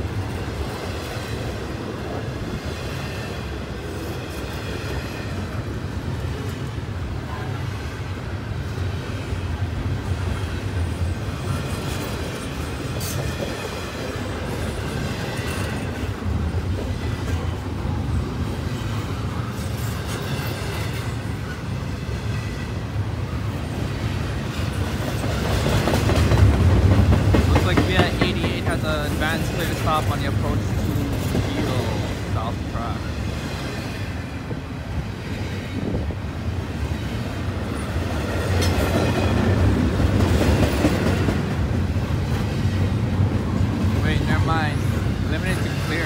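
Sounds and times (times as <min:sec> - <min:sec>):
steel wheels rumbling on rail: 0:00.0 - 0:46.0
wheels clicking over rail joints: 0:24.4 - 0:32.4, 0:37.6 - 0:44.0.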